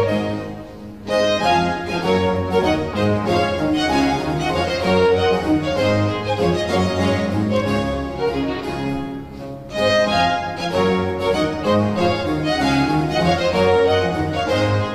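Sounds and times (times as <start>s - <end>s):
baroque string ensemble playing: 0.0s - 14.9s.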